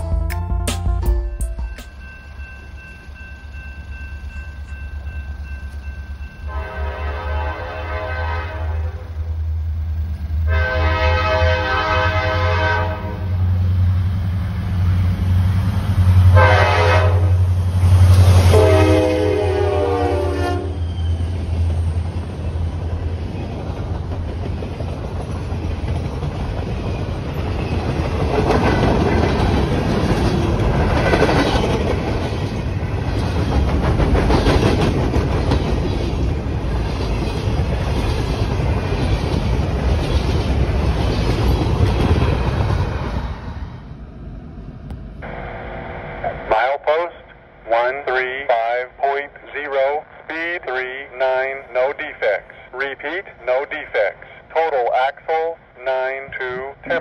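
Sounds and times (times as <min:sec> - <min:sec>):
locomotive air horn blasts: 0:06.5 - 0:09.1, 0:10.5 - 0:13.3, 0:16.3 - 0:17.4, 0:18.5 - 0:20.8.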